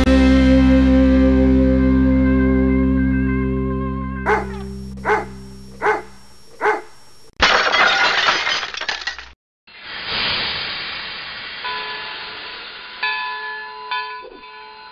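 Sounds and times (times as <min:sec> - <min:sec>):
dog barking: 0:04.3 - 0:06.9
glass shattering crash: 0:07.4 - 0:09.4.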